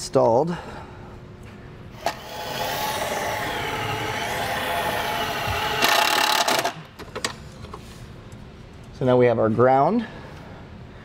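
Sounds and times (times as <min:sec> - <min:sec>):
cordless drill motor whining: 0:02.0 - 0:06.8
drill click: 0:02.0 - 0:06.9.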